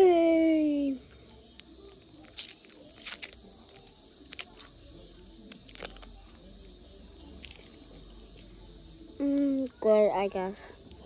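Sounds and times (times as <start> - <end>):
sweet wrapper crinkling: 1.2 - 8.4.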